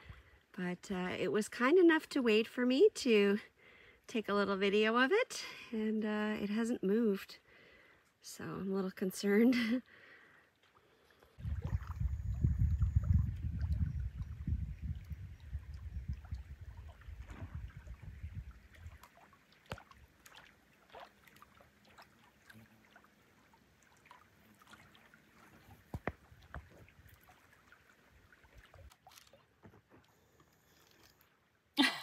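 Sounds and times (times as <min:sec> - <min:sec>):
lake water lapping: 0:09.8 - 0:31.7
wind rumble on microphone: 0:11.4 - 0:19.0.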